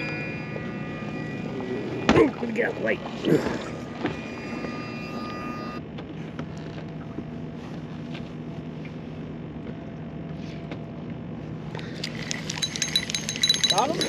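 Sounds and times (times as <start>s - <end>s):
boat motor humming: 0.0s - 14.0s.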